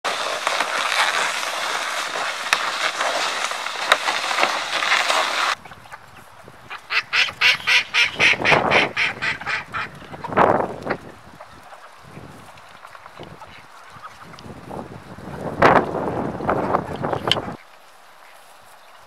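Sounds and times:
plastic sled scraping over snow: 0.0s - 6.6s, 9.6s - 17.6s
poultry calling: 5.6s - 12.1s.

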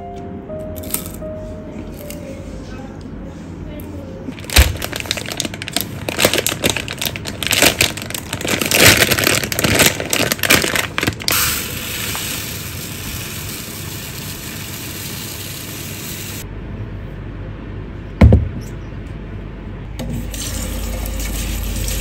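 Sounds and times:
plastic bag crinkling: 4.3s - 12.2s
rice grains pouring into a jug: 11.3s - 16.4s.

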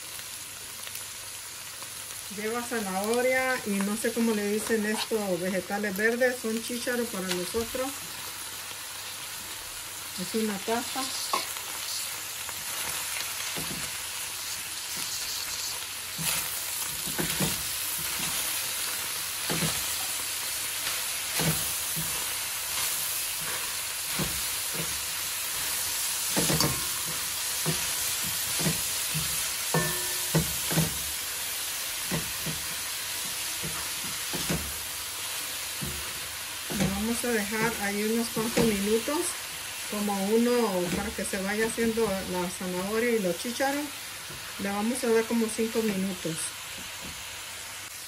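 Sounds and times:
food sizzling in a pot: 0.0s - 48.0s
spatula knocking and scraping pot: 26.3s - 31.0s.

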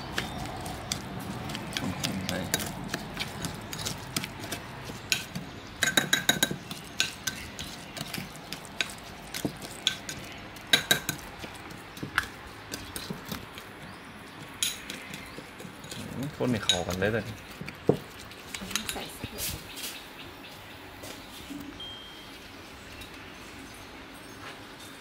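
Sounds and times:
metal spoon scraping in bowl: 0.1s - 11.2s, 14.6s - 17.5s
spoon clinking against bowl: 5.1s - 7.7s.

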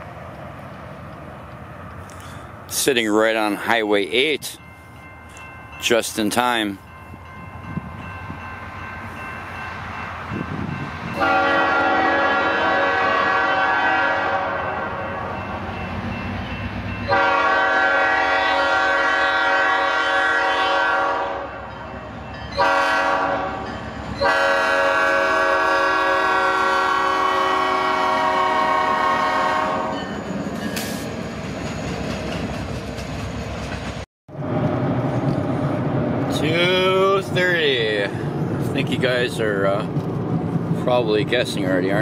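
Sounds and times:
train rumbling and clattering: 0.0s - 20.0s, 21.1s - 42.0s
locomotive air horn blasts: 11.2s - 15.4s, 17.1s - 21.6s, 22.6s - 30.0s.

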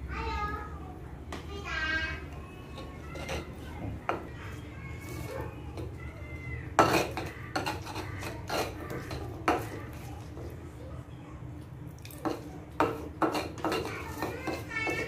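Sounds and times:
pestle grinding in mortar: 6.8s - 10.5s, 12.2s - 15.0s.

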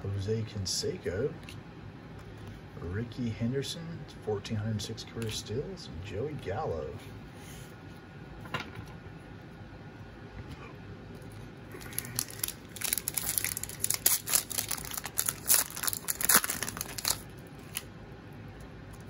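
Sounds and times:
foil wrapper crinkling and tearing: 11.3s - 17.9s.

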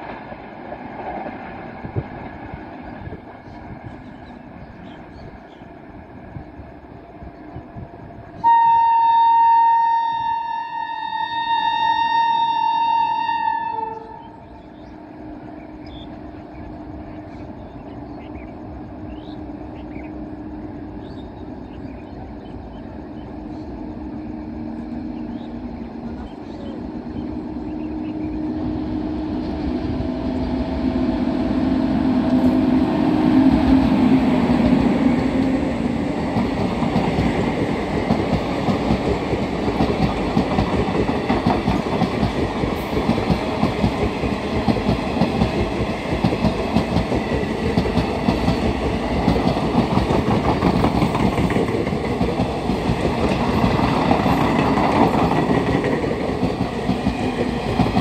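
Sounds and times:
electric locomotive hum: 0.0s - 58.0s
train wheels clattering on rails: 32.2s - 58.0s.

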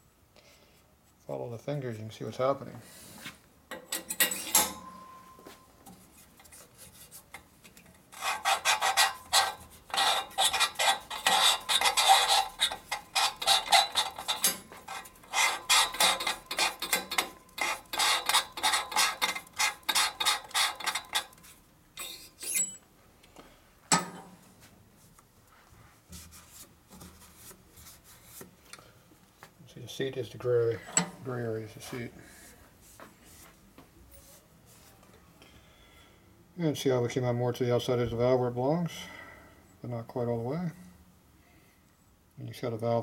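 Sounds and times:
metal-on-metal valve rasping: 8.1s - 22.8s.

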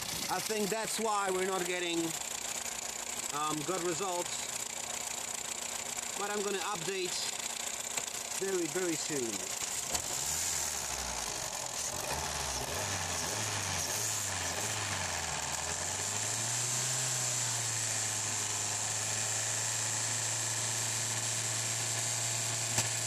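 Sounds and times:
car engine idling: 0.0s - 23.0s.

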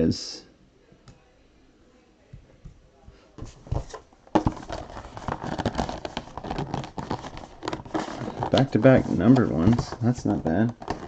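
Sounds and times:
packaging crinkling and rustling: 3.8s - 11.0s.

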